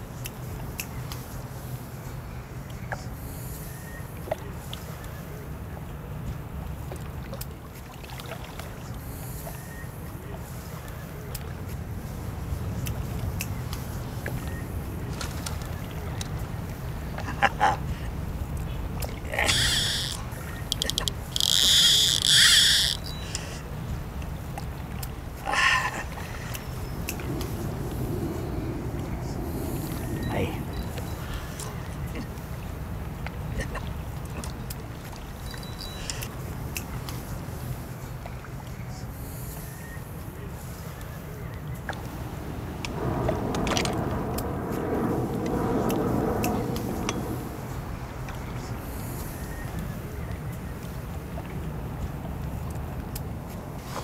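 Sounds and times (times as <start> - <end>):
low outdoor rumble: 0.0 - 54.0
fishing reel clicking: 19.4 - 23.5
fishing reel whirring: 19.4 - 23.6.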